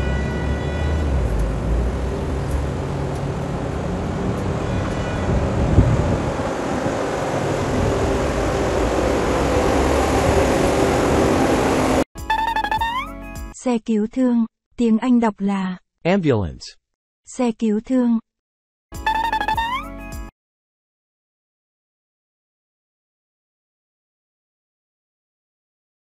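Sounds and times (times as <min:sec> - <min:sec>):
monorail train rumbling: 0:00.0 - 0:12.0.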